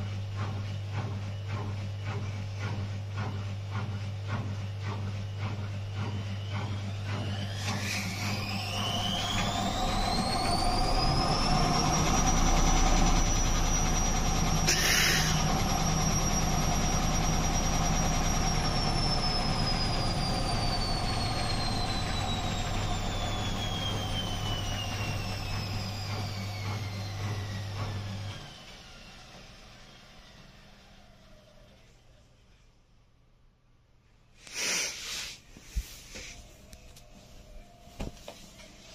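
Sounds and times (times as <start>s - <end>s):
washing machine motor whine: 0.0s - 31.9s, 35.6s - 38.9s
brief hiss: 34.4s - 36.5s.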